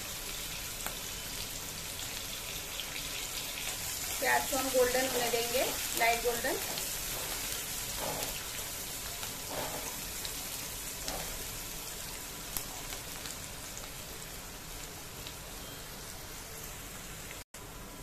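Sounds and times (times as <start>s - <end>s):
onions sizzling in hot oil: 0.0s - 18.0s
spatula scraping: 9.4s - 10.1s.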